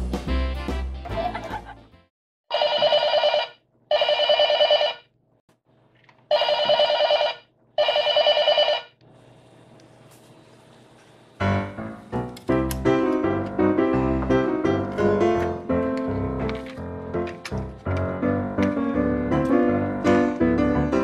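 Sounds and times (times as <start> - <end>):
background music: 0.0 - 2.1, 11.4 - 21.0
toy telephone ringing: 2.5 - 5.0, 6.3 - 8.9.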